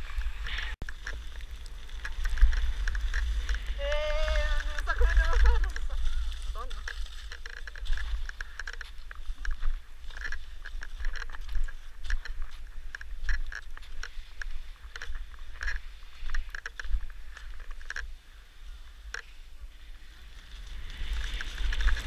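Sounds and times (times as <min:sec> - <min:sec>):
skis scraping over snow: 0:00.0 - 0:22.0
wind rumbling on microphone: 0:00.0 - 0:22.0.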